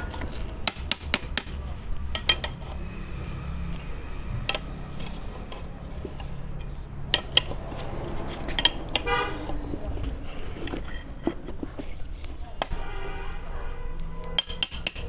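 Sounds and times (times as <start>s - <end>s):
metal tools clinking: 0.1s - 2.9s, 4.4s - 12.0s, 13.6s - 15.0s.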